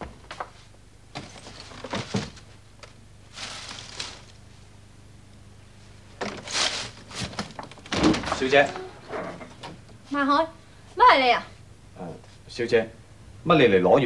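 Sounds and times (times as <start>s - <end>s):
thuds: 7.2s - 9.8s.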